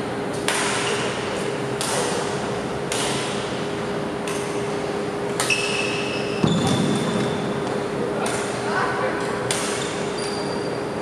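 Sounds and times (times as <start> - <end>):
shuttlecock struck by rackets: 0.3 - 1.2, 1.8 - 3.5, 4.2 - 4.6, 6.4 - 8.6, 9.5 - 9.9
shoe squeaking on wooden floor: 5.5 - 7.4, 10.0 - 10.8.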